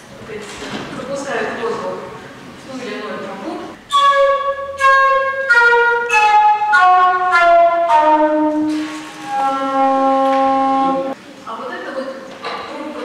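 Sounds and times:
wooden organ pipes descending scale: 3.8 - 11.2.

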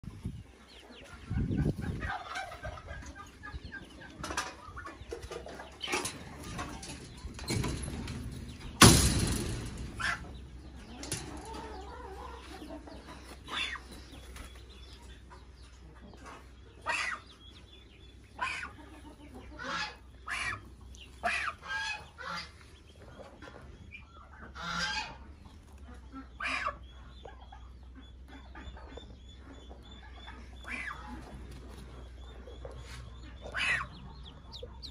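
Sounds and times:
ducklings peeping: 0.0 - 34.9
farmyard fowl calling: 0.6 - 7.4, 8.6 - 34.9
loud thumps: 7.2 - 10.7.

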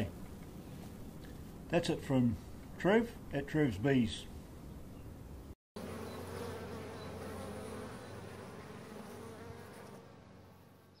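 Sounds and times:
bees buzzing: 5.8 - 11.0.

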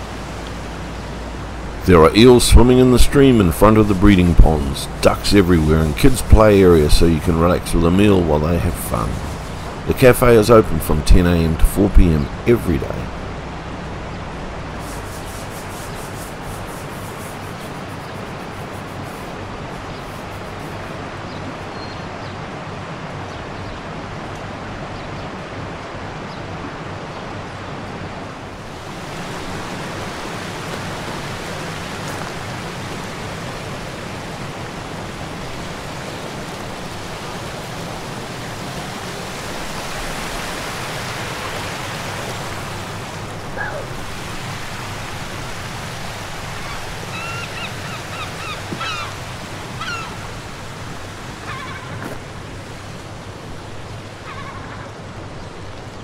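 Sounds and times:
fast-running stream rushing: 0.0 - 54.3
bird chirping: 19.8 - 22.4.

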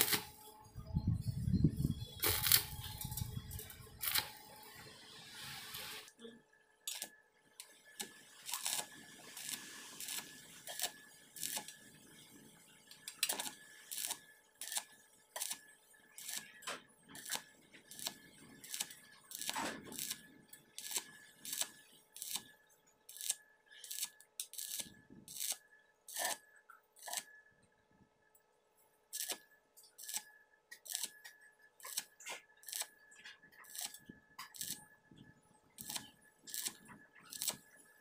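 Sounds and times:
welding arc crackling: 0.0 - 0.5, 2.2 - 6.1, 6.9 - 12.3, 13.0 - 22.5, 23.1 - 26.4, 27.0 - 27.2, 29.1 - 33.0, 33.6 - 34.8, 35.8 - 37.8.

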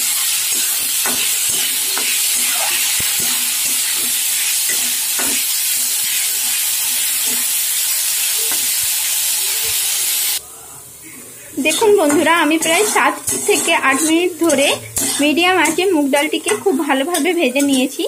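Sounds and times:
spatula scraping a pan: 0.0 - 7.6, 11.6 - 18.0
lentils sizzling in oil: 0.0 - 18.0.

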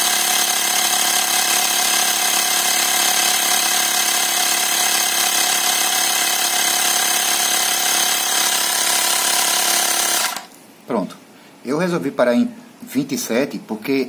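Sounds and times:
electric air compressor running: 0.0 - 10.5.

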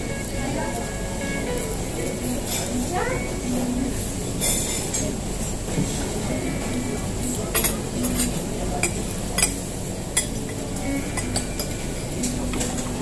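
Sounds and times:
restaurant background din: 0.0 - 13.0
cutlery clinking on plates: 4.4 - 5.1, 7.3 - 12.9.

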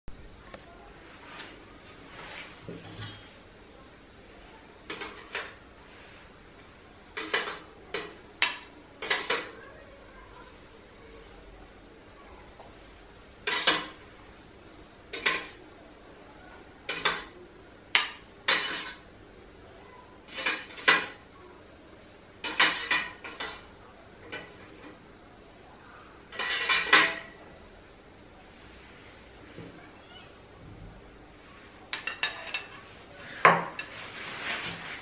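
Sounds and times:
metal spoon clinking on pot and bowl: 31.9 - 32.8.

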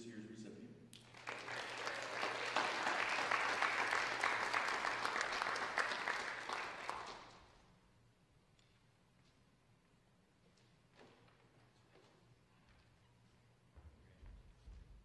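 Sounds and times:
audience applauding: 1.0 - 7.6.

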